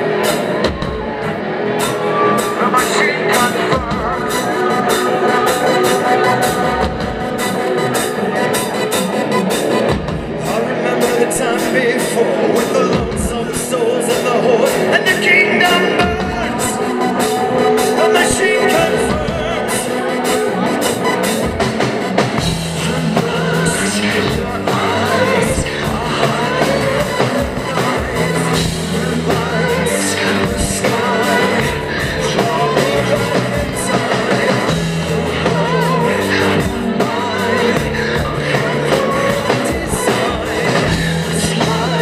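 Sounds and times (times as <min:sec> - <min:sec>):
live rock band playing: 0:00.0 - 0:42.0
man singing: 0:01.9 - 0:08.9, 0:10.2 - 0:21.2, 0:22.4 - 0:42.0.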